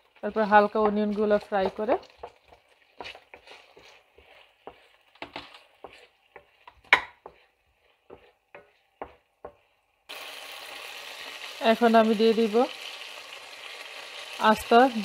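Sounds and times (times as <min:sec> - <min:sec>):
wooden spoon scraping a pan: 0:00.0 - 0:09.9
onions sizzling: 0:00.0 - 0:15.0.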